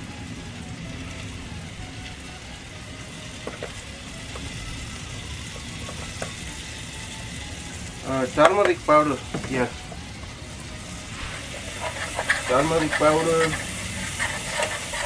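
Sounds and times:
butter sauce sizzling in pan: 0.1 - 15.0.

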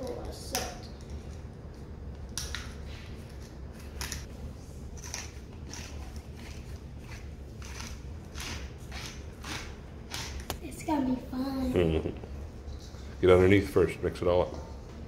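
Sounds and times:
pepper mill grinding: 5.0 - 10.5.

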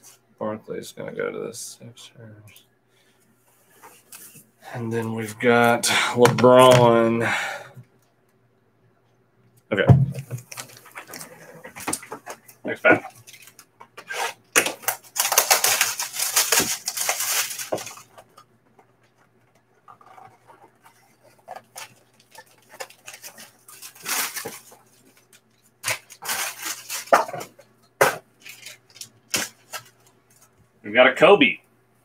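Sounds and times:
plastic wrap crinkling and tearing: 13.0 - 18.4, 20.0 - 27.6, 28.4 - 30.0.

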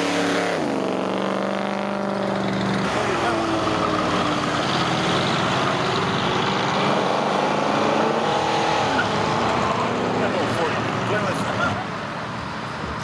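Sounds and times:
cars driving past: 0.0 - 13.0.

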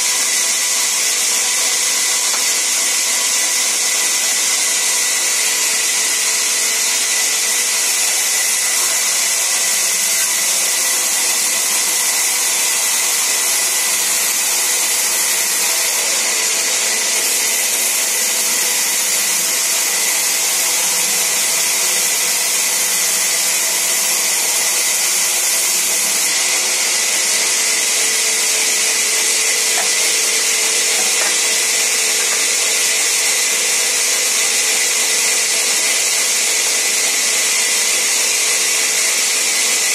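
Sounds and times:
band saw ripping wooden planks: 28.1 - 34.6.

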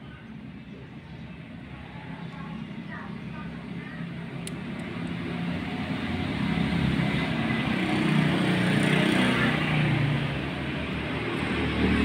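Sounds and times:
passing motor vehicle engine: 3.6 - 12.0.

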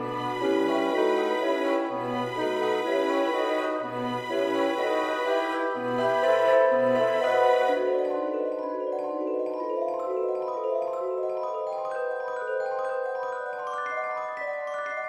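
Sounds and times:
mallet percussion melody: 4.4 - 15.0.

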